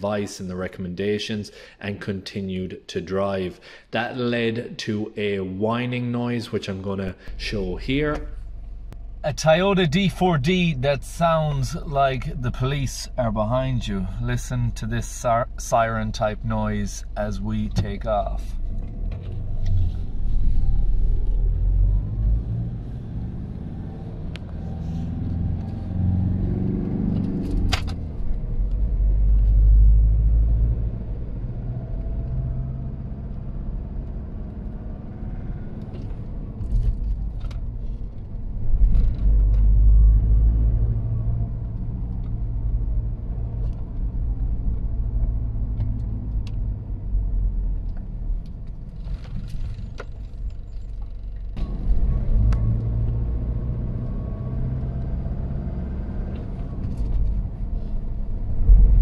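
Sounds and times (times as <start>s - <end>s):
diesel engine accelerating: 7.1s - 59.0s.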